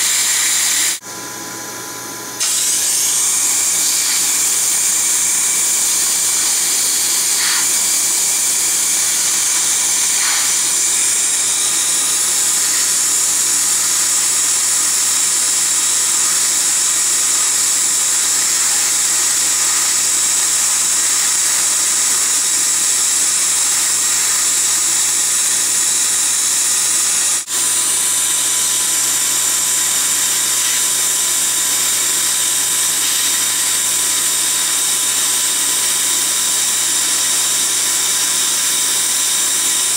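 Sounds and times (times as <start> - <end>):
dental air-water spray hiss: 0.0 - 1.0, 2.4 - 13.0, 27.4 - 37.2
dental suction running: 0.0 - 1.0, 2.3 - 39.9.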